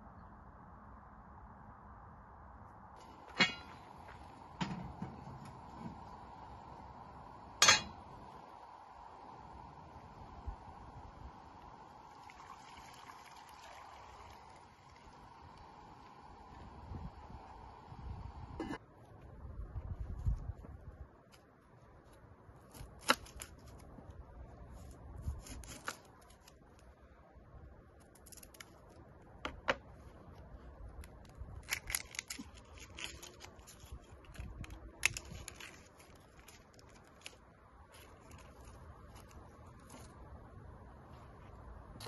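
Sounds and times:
onion skin rustling: 0:22.0 - 0:26.9, 0:27.9 - 0:29.2, 0:30.8 - 0:40.3.

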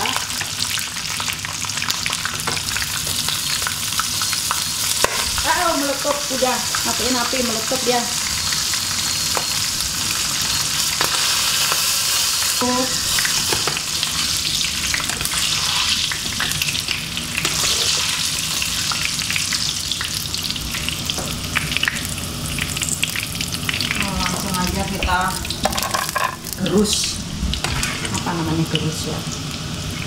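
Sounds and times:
food sizzling in hot oil: 0:00.0 - 0:30.0.

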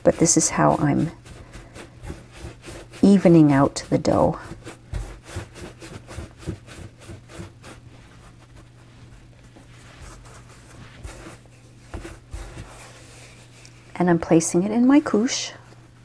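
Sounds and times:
hands rubbing dough: 0:00.0 - 0:16.0.

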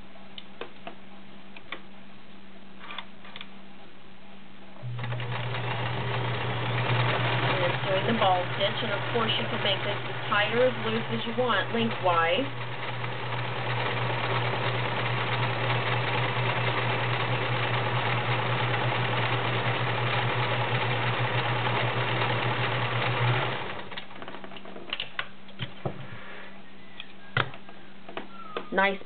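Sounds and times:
sewing machine running: 0:04.8 - 0:24.4.

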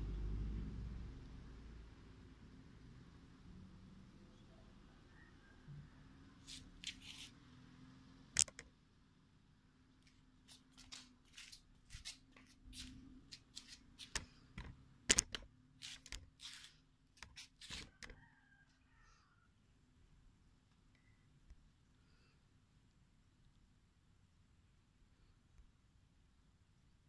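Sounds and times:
phone handling rustles and clicks: 0:14.0 - 0:15.5.

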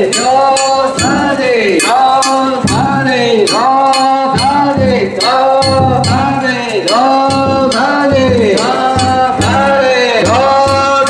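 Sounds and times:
drum beats: 0:00.0 - 0:11.0.

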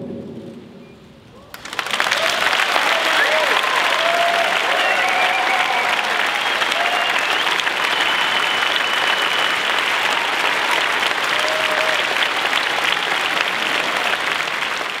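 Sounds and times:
large audience applauding: 0:01.5 - 0:15.0
high whistle: 0:04.7 - 0:10.8.

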